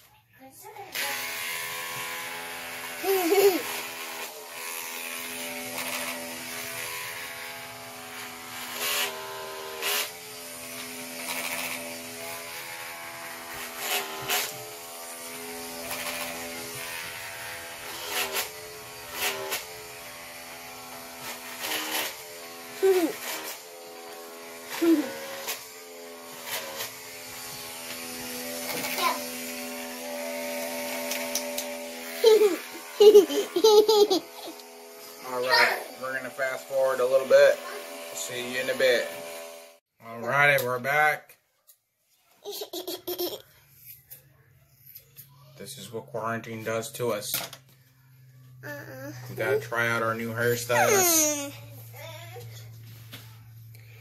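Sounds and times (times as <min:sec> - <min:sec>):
electric hair clippers buzzing: 0:00.9 - 0:39.8, 0:48.6 - 0:51.6.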